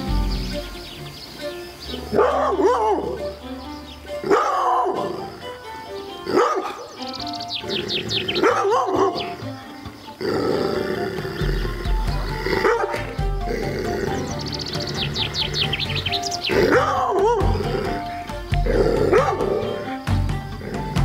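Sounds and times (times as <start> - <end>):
background music: 0.0 - 21.0
dog barking: 2.1 - 3.2, 4.2 - 5.1, 6.3 - 6.9, 8.4 - 9.3, 12.6 - 13.2, 16.6 - 17.6, 19.1 - 19.7.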